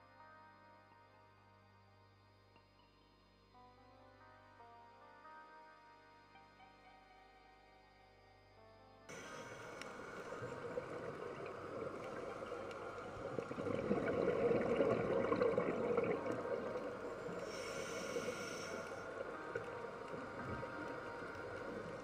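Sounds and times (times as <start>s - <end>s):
regulator inhalation hiss: 9.1s - 14.2s, 15.3s - 22.0s
exhaled bubbles rushing: 9.1s - 22.0s
watery underwater noise: 9.1s - 22.0s.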